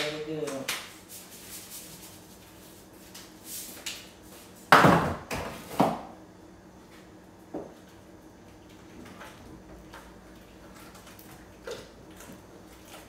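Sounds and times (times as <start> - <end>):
kitchen knocks and clatter: 4.7 - 6.1.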